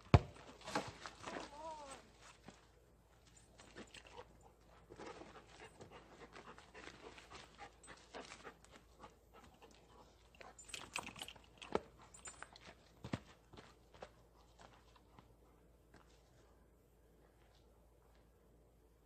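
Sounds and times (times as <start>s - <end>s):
dog panting: 4.0s - 10.8s.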